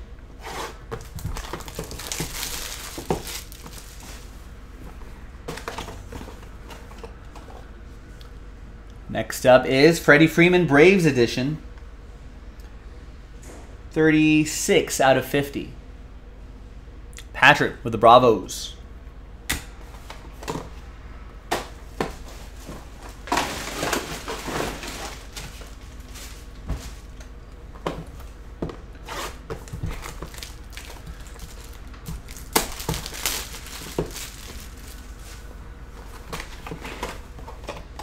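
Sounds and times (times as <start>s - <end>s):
wrapping crinkling: 1.0s - 4.4s, 23.3s - 27.3s, 29.1s - 36.7s.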